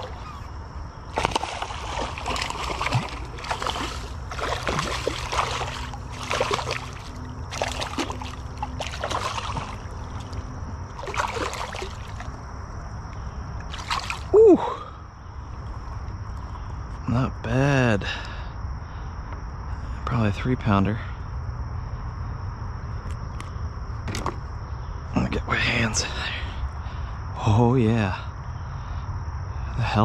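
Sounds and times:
fish splashing in water: 0:01.0 - 0:12.4, 0:13.7 - 0:14.3.

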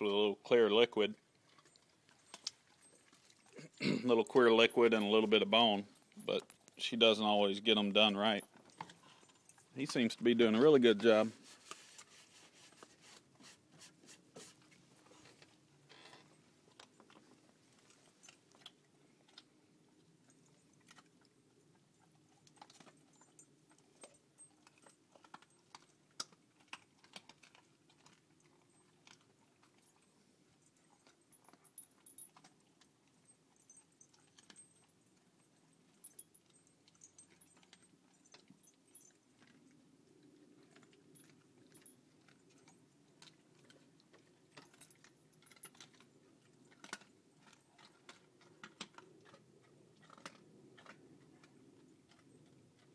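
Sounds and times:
dog chewing bones: 0:20.2 - 0:30.2, 0:30.8 - 0:52.9.

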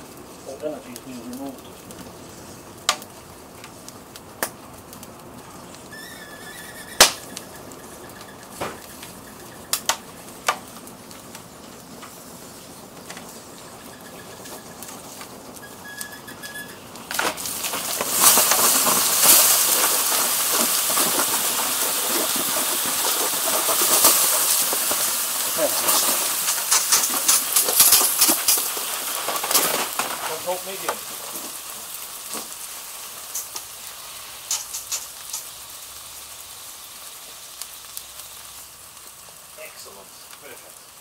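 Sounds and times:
fire crackling: 0:00.0 - 0:41.0
hissing steam from hose water: 0:00.0 - 0:41.0
sharp pops: 0:04.4 - 0:04.6, 0:06.9 - 0:12.2, 0:17.0 - 0:31.6, 0:34.4 - 0:35.6
faint thin whistle: 0:15.6 - 0:16.8.

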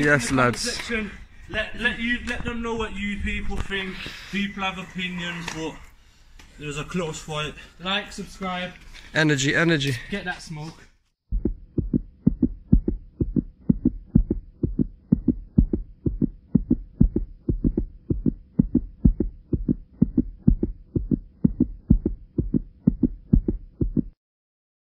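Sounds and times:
bass-heavy pulsing beat: 0:11.3 - 0:24.2.

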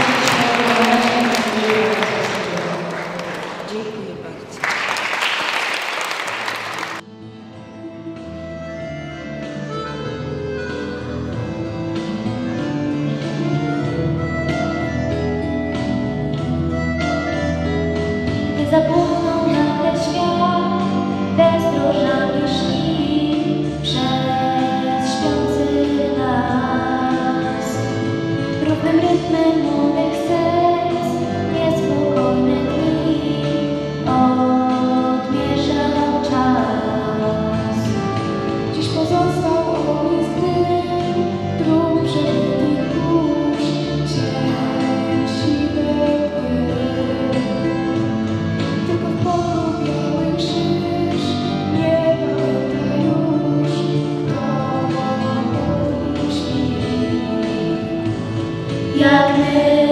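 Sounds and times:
instrumental accompaniment: 0:06.0 - 0:59.9
girls singing into microphones: 0:18.6 - 0:38.1, 0:38.7 - 0:48.0, 0:48.8 - 0:58.2, 0:58.9 - 0:59.9.

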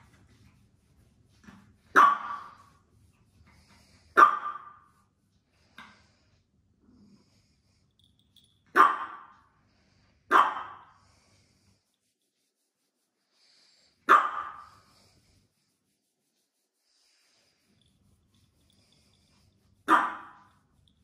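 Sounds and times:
dog barking: 0:01.9 - 0:02.6, 0:04.2 - 0:04.9, 0:08.7 - 0:09.3, 0:10.3 - 0:11.0, 0:14.1 - 0:14.8, 0:19.8 - 0:20.5.

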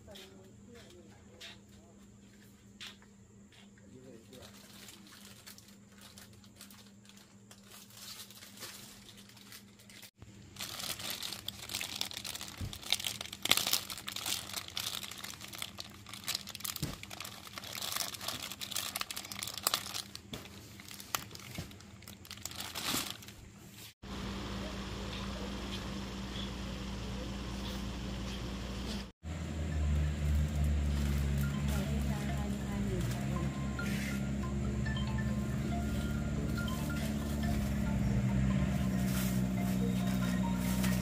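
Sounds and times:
crinkling and rustling: 0:04.0 - 0:24.0.

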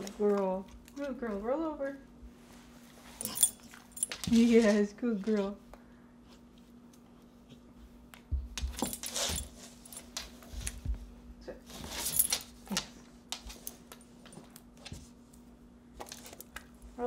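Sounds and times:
collar tags jingling: 0:03.2 - 0:04.8
dog claws clicking on floor: 0:03.2 - 0:05.5, 0:08.2 - 0:11.0, 0:11.8 - 0:15.4, 0:16.0 - 0:16.8
dog body thumping on floor: 0:08.3 - 0:11.2.

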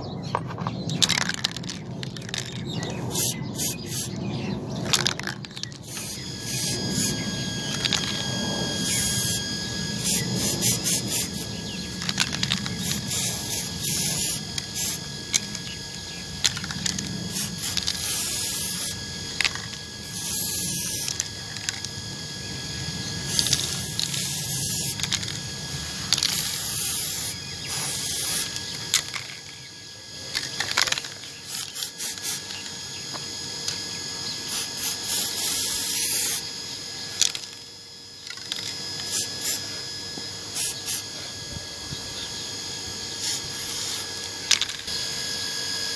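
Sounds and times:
spray paint can hissing: 0:01.0 - 0:04.2, 0:04.8 - 0:08.2, 0:08.8 - 0:09.4, 0:10.0 - 0:22.0, 0:23.3 - 0:29.6, 0:30.3 - 0:32.7, 0:34.4 - 0:36.5, 0:37.1 - 0:37.6, 0:38.2 - 0:39.7, 0:40.5 - 0:41.0, 0:43.2 - 0:44.9.

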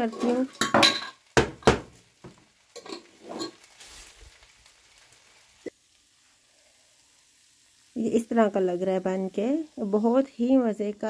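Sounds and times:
wooden spatula scraping a pan: 0:00.0 - 0:01.1, 0:02.8 - 0:04.4
faint hiss: 0:00.0 - 0:11.0.

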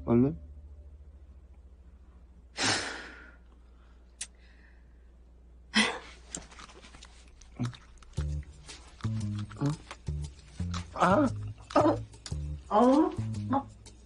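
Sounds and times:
faint low hum: 0:00.0 - 0:13.8
small clicks and rustles: 0:06.2 - 0:10.1.

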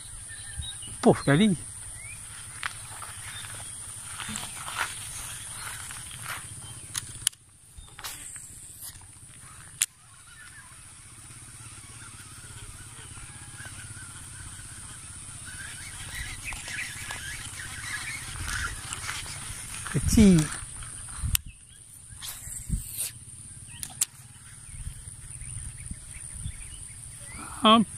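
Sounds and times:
high insect drone: 0:00.0 - 0:27.9
sharp clicks: 0:06.8 - 0:10.6.

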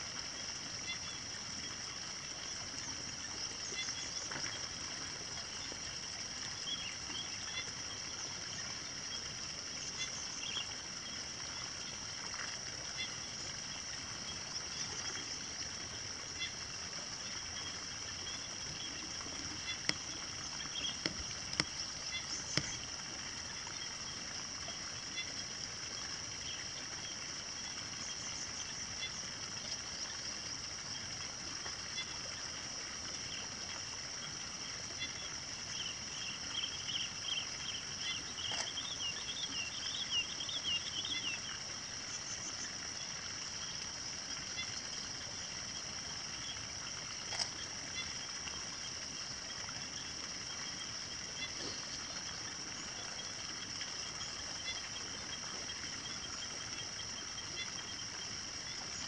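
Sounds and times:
insects chorus: 0:00.0 - 0:59.0.

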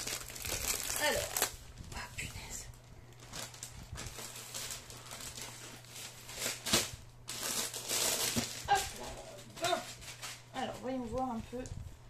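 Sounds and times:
plastic film crinkling: 0:00.0 - 0:02.0, 0:02.7 - 0:09.0
sharp plastic crackle: 0:00.0 - 0:02.0, 0:03.1 - 0:09.0.

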